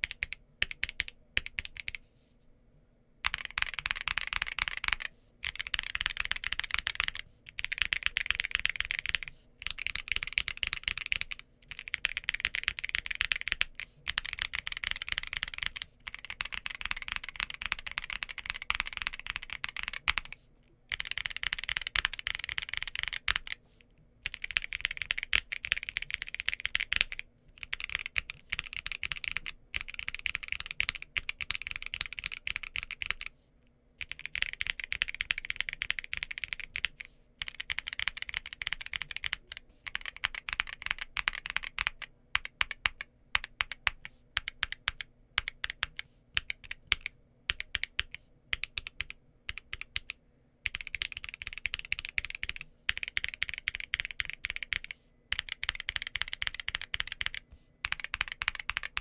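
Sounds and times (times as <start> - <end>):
fast typing on mechanical keyboard: 0.0 - 2.0, 3.2 - 23.6, 24.2 - 33.3, 34.0 - 59.0.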